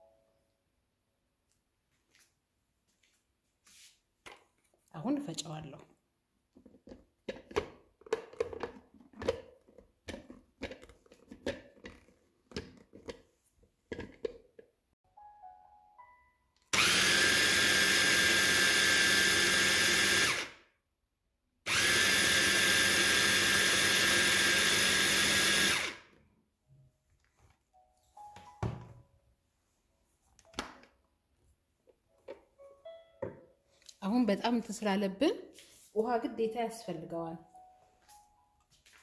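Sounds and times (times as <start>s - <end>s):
food processor motor whirring: 16.7s - 20.6s, 21.7s - 26.2s.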